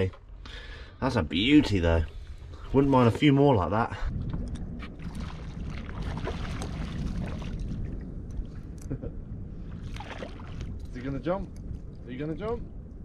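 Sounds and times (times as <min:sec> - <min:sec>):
wind on microphone: 0:00.0 - 0:13.0
water lapping against metal hull: 0:04.2 - 0:08.4, 0:09.7 - 0:11.0.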